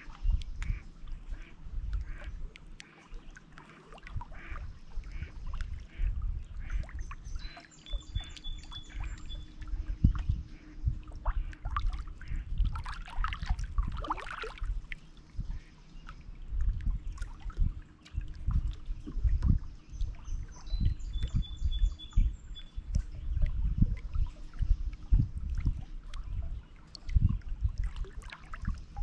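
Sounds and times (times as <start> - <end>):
birds chirping: 0.0 - 12.6, 14.3 - 23.8
waves lapping against rocks: 11.2 - 15.1.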